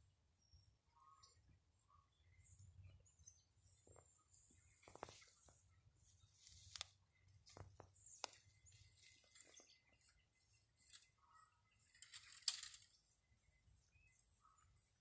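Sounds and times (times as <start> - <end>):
faint rustling in undergrowth: 0.0 - 15.0
twigs snapping: 6.4 - 8.5.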